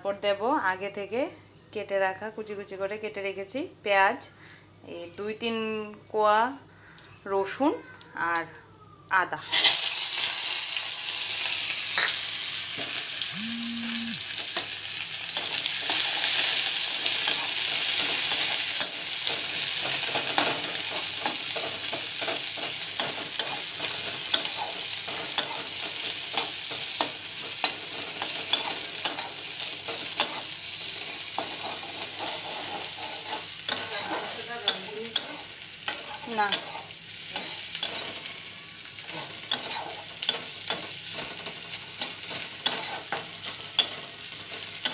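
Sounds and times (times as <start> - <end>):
food sizzling in hot oil: 9.4 - 44.9
spatula scraping pan: 17.2 - 38.3, 39.0 - 41.4, 42.3 - 44.0.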